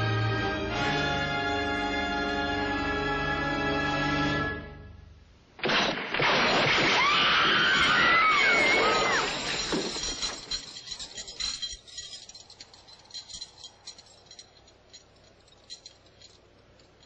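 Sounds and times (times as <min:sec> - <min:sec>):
crowd outcry: 0:07.0 - 0:09.3
metallic clinks and ticks: 0:09.3 - 0:17.0.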